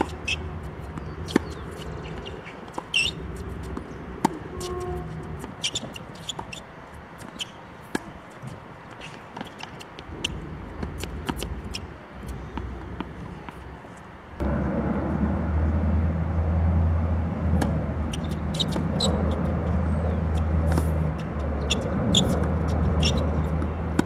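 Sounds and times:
racket hitting tennis ball: 0.0 - 6.6, 7.2 - 13.6, 17.5 - 24.0
tennis ball bouncing: 0.0 - 13.7, 17.4 - 24.0
steady low rumble: 14.4 - 24.0.

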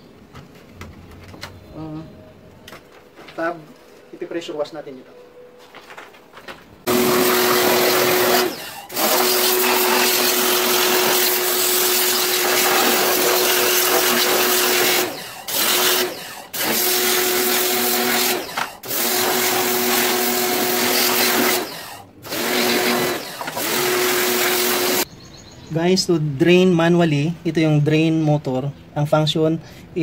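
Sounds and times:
pressure washer motor humming: 6.9 - 25.1
water jet spraying plastic: 6.9 - 25.1.

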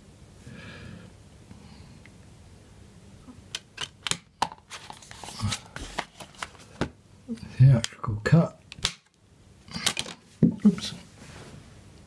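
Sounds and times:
card panels being handled: 3.6 - 7.0
sharp plastic clicks: 8.7 - 9.2.

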